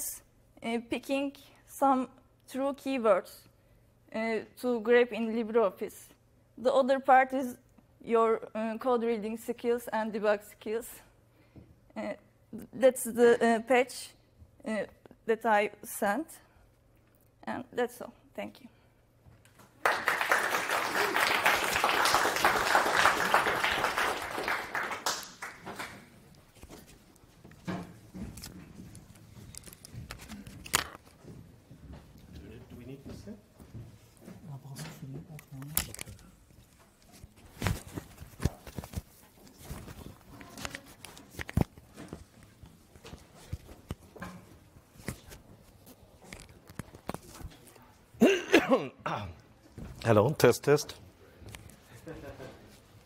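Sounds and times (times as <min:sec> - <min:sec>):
audience applause: 0:19.8 - 0:26.1.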